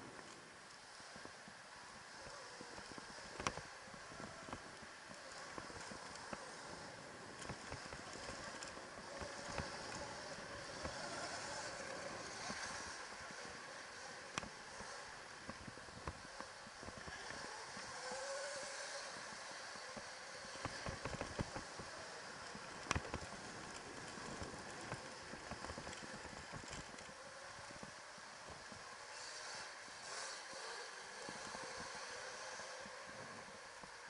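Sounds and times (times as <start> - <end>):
tyre and wind noise: 0.0 - 34.0
bike knocking and rattling: 2.2 - 18.2, 19.8 - 30.5.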